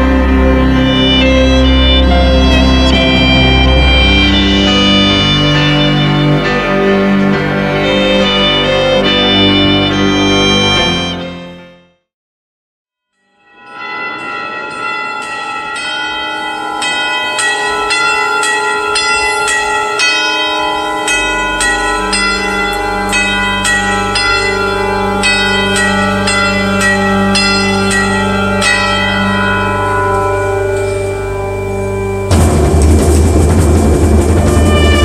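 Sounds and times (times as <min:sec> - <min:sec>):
low steady drone: 0:00.0 - 0:10.8, 0:20.9 - 0:35.0
church bells pealing: 0:00.0 - 0:11.5, 0:13.2 - 0:35.0.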